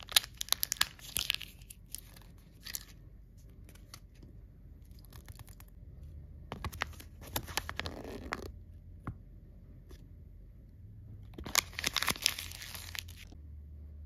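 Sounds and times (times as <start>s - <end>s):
paper leaflet crinkling: 0.0s - 4.2s, 6.5s - 8.5s, 11.4s - 13.3s.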